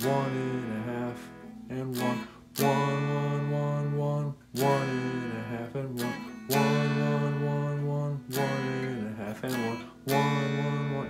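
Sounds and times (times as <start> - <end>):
guitar chords strummed: 0.0 - 11.0.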